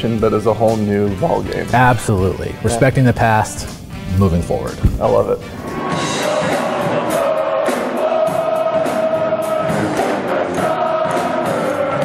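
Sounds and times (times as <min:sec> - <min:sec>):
regular drum hits: 0:03.2 - 0:11.7.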